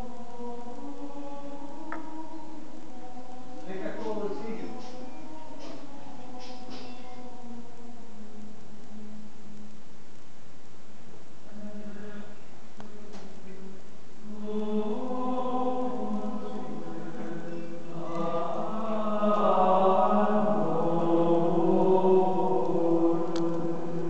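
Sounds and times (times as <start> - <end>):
choir singing held notes: 0.0 - 8.5, 14.2 - 24.0.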